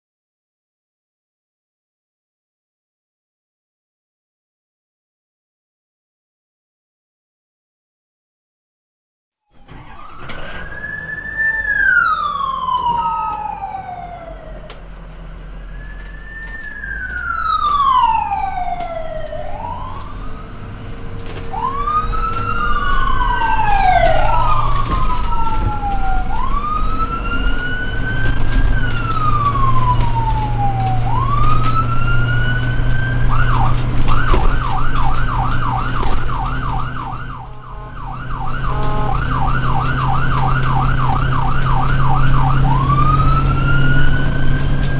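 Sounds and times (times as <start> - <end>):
fast siren yelp: 9.5 - 14.9, 15.5 - 20.6, 21.4 - 44.9
ambulance siren wailing: 9.5 - 44.9
vehicle engine hum: 9.5 - 44.9.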